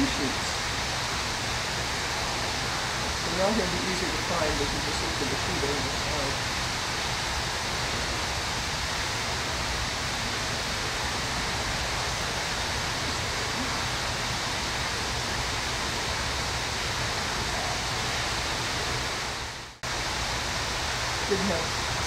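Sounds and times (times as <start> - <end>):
steady rushing noise: 0.0 - 22.0.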